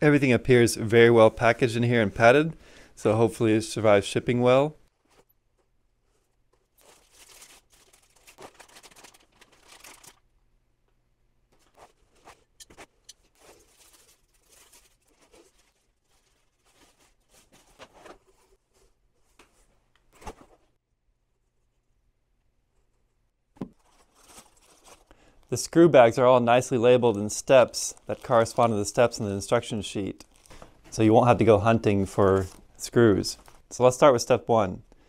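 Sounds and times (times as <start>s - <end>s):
packaging rustling and crinkling: 6.1s - 10.3s, 11.5s - 20.8s, 23.7s - 25.5s, 27.0s - 33.7s.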